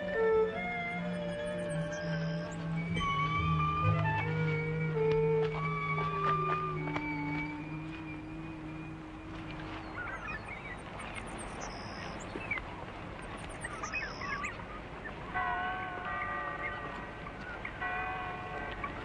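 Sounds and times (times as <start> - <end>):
music with held notes: 0.0 - 12.2, 15.3 - 19.0
outdoor noise: 0.0 - 19.0
birds chirping and calling: 1.0 - 3.6, 8.1 - 19.0.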